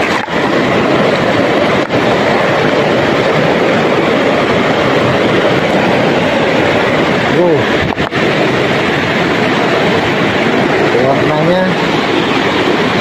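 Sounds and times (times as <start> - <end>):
river rushing among boulders: 0.0 - 13.0.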